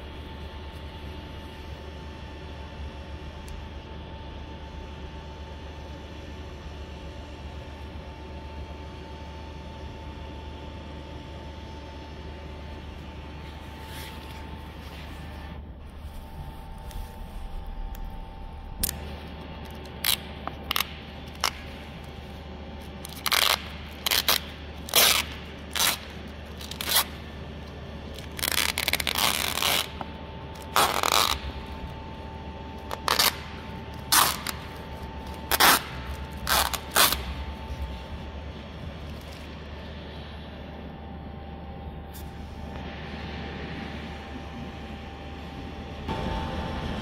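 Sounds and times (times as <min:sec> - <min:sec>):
plastic film crackling: 0:18.8 - 0:38.3.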